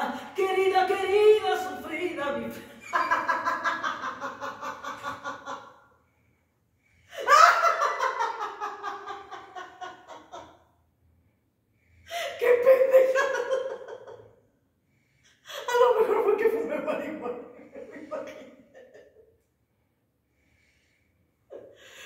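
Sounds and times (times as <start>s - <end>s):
woman laughing: 2.6s - 5.7s, 7.2s - 10.5s, 12.1s - 14.2s, 15.6s - 19.2s.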